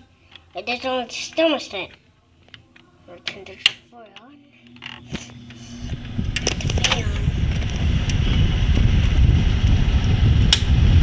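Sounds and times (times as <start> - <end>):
air conditioner fan rushing: 3.0 - 11.0.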